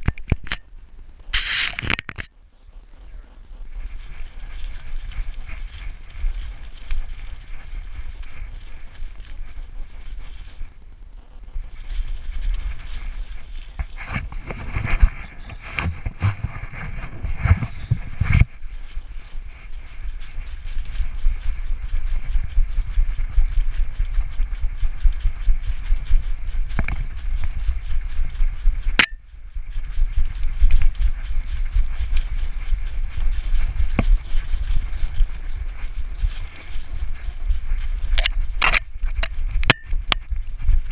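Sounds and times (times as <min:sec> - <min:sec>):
camera jostling and rubbing: 0:00.0 - 0:00.6, 0:01.3 - 0:02.3, 0:03.7 - 0:10.8, 0:11.4 - 0:40.9
wind rumble on microphone: 0:00.0 - 0:40.9
sharp click: 0:01.4 - 0:02.3
paws crunching through dry leaves: 0:02.8 - 0:40.9
knocks and rustling: 0:13.8 - 0:18.5.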